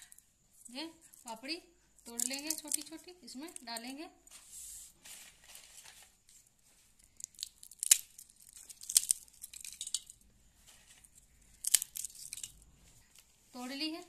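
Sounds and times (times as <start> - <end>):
crunchy breaking: 2.0 - 3.7, 6.9 - 13.3
crisp wafers cracking: 2.0 - 3.8, 7.0 - 10.2, 10.8 - 12.7.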